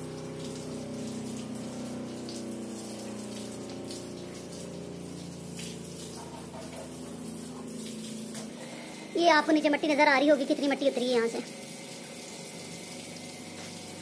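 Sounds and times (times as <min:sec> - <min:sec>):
constant hum: 0:00.0 - 0:14.0
hose water splashing: 0:00.0 - 0:14.0.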